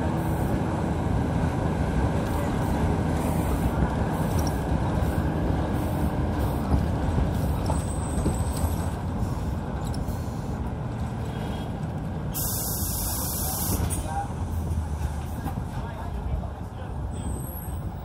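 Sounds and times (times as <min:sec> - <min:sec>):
bus engine and road rumble: 0:00.0 - 0:18.0
air hiss: 0:12.3 - 0:13.9.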